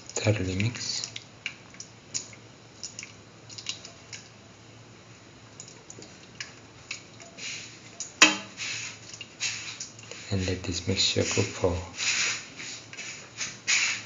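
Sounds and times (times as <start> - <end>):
soft wet squishing: 0.0 - 4.5.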